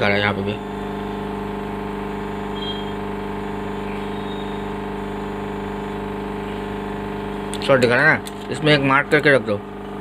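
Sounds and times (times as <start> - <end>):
multimeter continuity buzz: 0.0 - 10.0.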